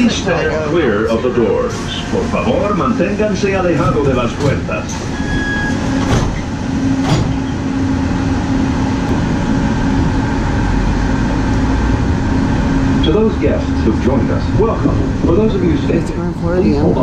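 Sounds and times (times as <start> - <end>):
low train rumble: 0.0 - 17.0
door closing beep: 5.0 - 6.2.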